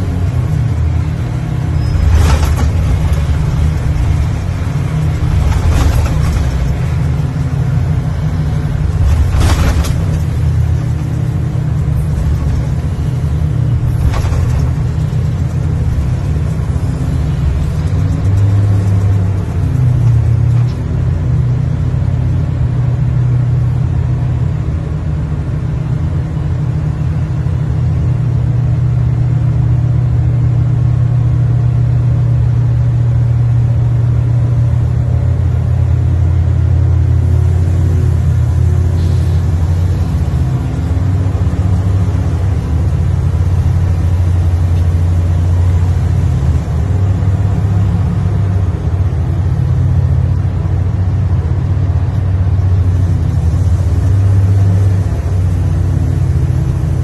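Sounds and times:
diesel engine running under load: 0.0s - 57.0s.

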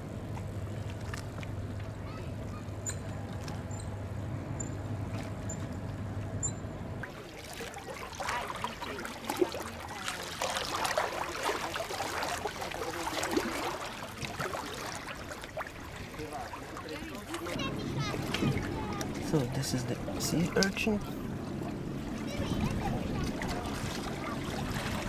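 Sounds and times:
steady low hum: 0.0s - 25.0s
little splashes: 0.2s - 3.6s, 7.0s - 25.0s
small waves lapping over rocks: 7.0s - 25.0s.

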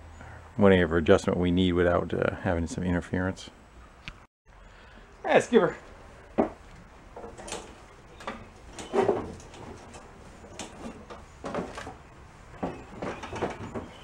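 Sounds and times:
knocks and clunks: 6.3s - 14.0s.

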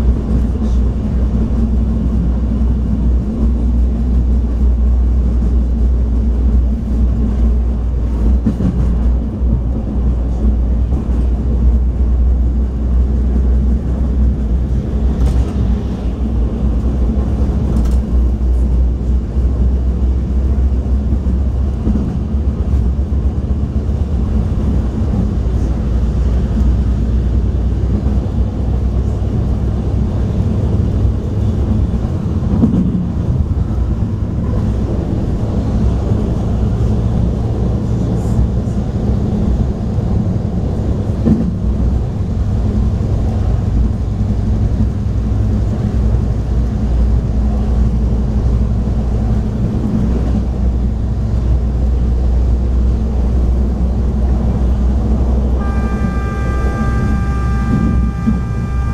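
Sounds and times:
diesel engine drone: 0.0s - 58.9s
train wheels rumbling on track: 0.0s - 58.9s.

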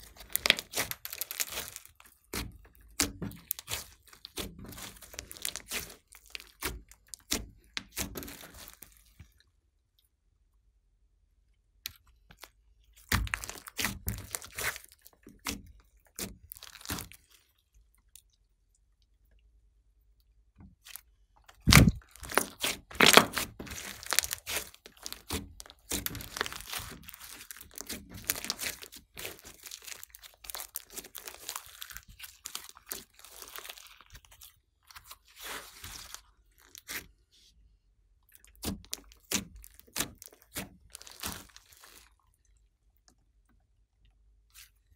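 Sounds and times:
hands squishing slime: 0.0s - 9.4s, 11.9s - 18.3s, 20.8s - 37.5s, 38.3s - 42.3s
sticky clicks and pops: 21.4s - 27.0s.

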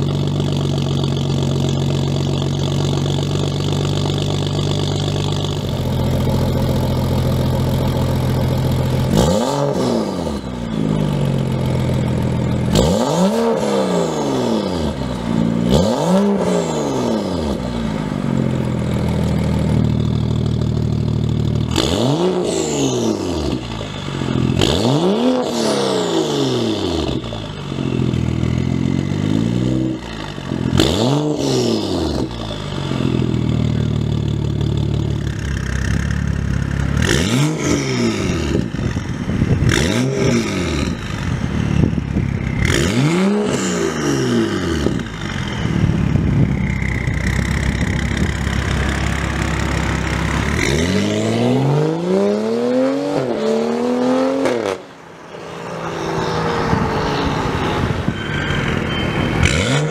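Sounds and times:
car engine idling: 0.0s - 9.4s, 10.0s - 13.0s, 17.1s - 25.0s, 26.6s - 31.0s, 31.8s - 40.0s, 40.9s - 51.4s
engine free-revs: 2.7s - 59.9s.

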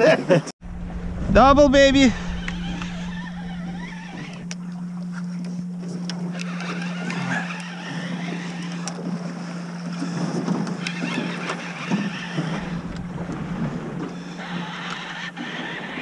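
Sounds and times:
wind on microphone: 0.6s - 4.6s, 11.9s - 16.0s
outboard motor idling: 0.6s - 16.0s.

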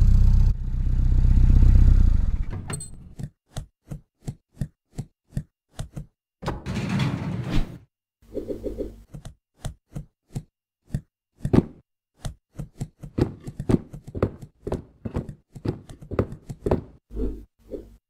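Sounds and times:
cartoon boxes knocking and thudding: 9.0s - 18.0s.

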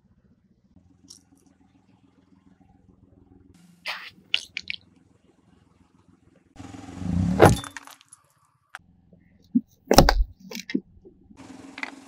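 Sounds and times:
car tyre crushing brittle objects: 7.6s - 8.5s.

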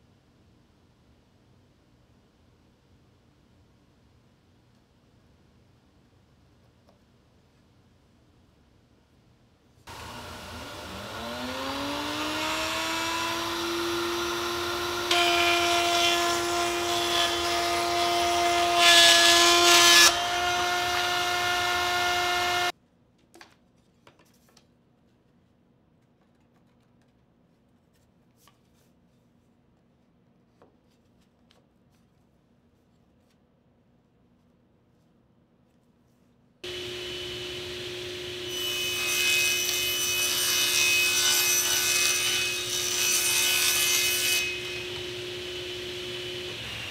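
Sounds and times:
router bit cutting wood: 9.9s - 22.7s, 36.7s - 46.9s
router whining: 9.9s - 22.7s, 36.7s - 40.3s, 44.5s - 46.9s.

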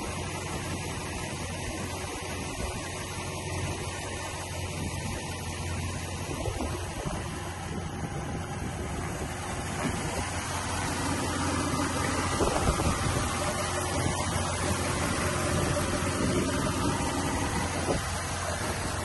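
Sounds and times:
car engine idling: 0.0s - 19.0s.

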